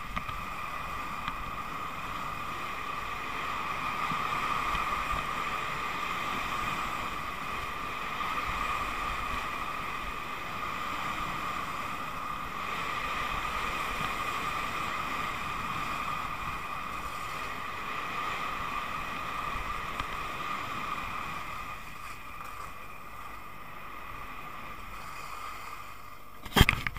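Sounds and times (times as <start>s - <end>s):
wind rushing over microphone: 0.0s - 26.9s.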